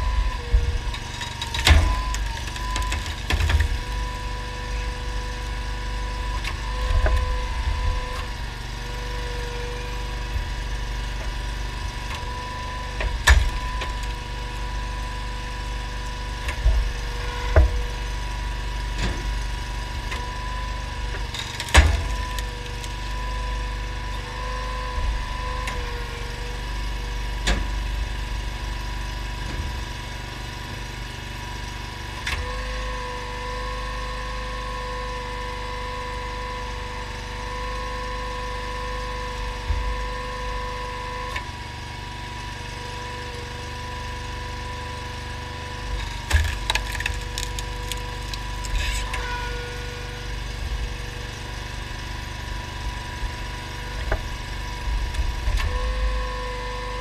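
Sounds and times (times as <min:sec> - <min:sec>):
engine running steadily: 0:00.0 - 0:57.0
hydraulic whine: 0:00.0 - 0:57.0
logs cracking as they split: 0:45.8 - 0:49.3.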